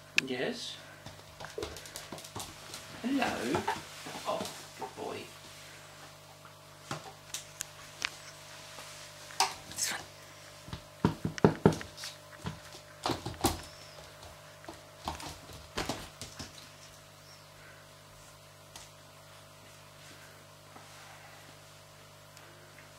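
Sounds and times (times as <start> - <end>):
puppy claws clicking on floor: 1.0 - 2.8.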